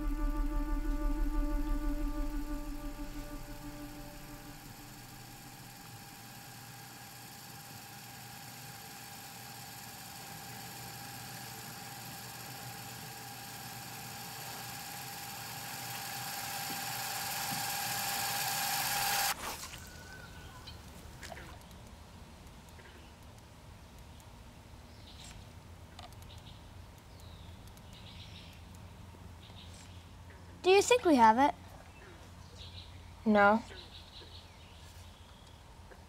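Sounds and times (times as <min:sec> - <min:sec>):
quiet outdoor ambience: 0:00.0 - 0:17.6, 0:19.2 - 0:36.0
film score drone: 0:00.0 - 0:19.4.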